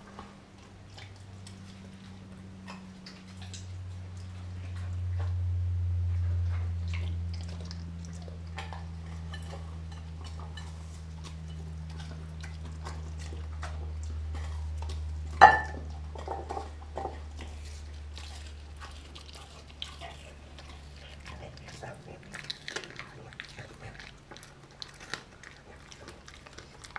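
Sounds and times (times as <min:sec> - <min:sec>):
dog chewing and licking: 0:00.0 - 0:26.9
low hum: 0:00.0 - 0:26.9
clink against glass bowl: 0:15.4 - 0:15.8.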